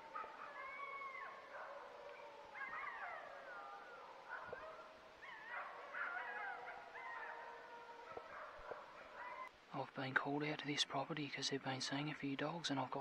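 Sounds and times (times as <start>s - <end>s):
distant wild dogs howling: 0.0s - 9.6s.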